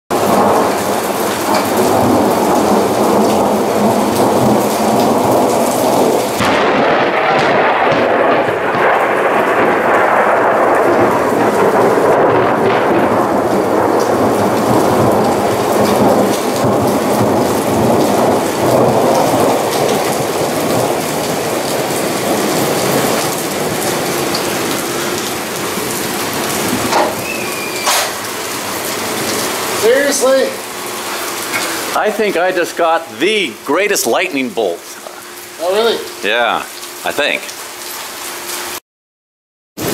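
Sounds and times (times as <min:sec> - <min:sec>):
thunder: 0:00.1 - 0:29.6
rain falling on surfaces: 0:00.1 - 0:38.8.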